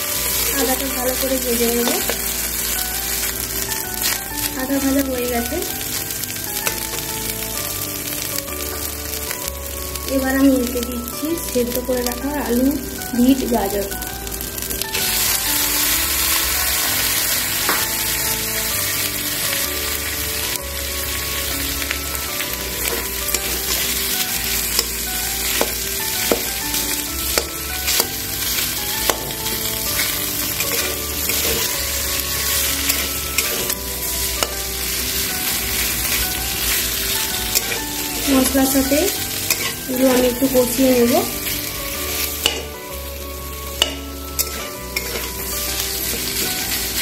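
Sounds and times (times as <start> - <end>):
vegetables sizzling in hot oil: 0.0 - 47.0
metal spatula scraping pan: 30.0 - 33.8, 39.5 - 40.5.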